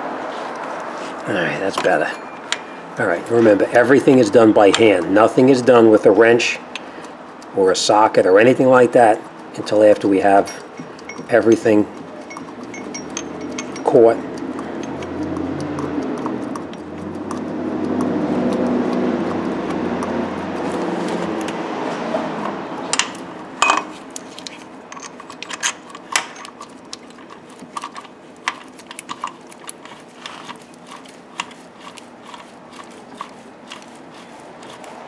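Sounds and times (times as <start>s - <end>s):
small metal clicks and clinks: 9.9s - 15.3s.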